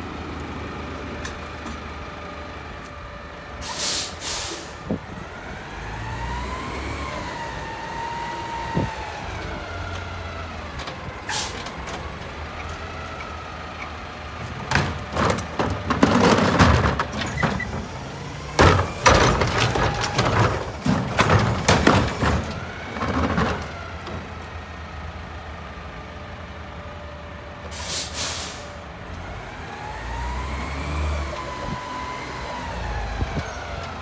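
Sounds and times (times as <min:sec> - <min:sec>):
garbage truck engine: 0:00.0 - 0:34.0
air brake hissing: 0:03.6 - 0:04.8, 0:27.7 - 0:28.8
trash cart clattering and knocking: 0:14.4 - 0:24.4.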